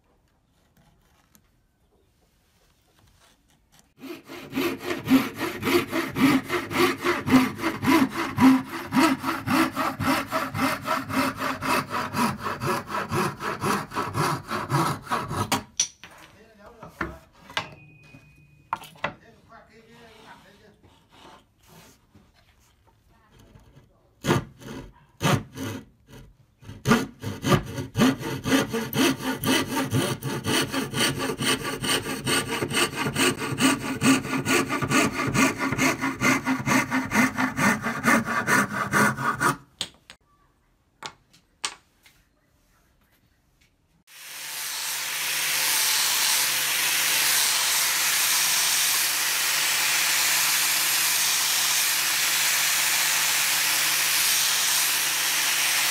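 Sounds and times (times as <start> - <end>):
scroll saw cutting wood: 3.8 - 15.7, 23.3 - 39.7, 44.1 - 55.9.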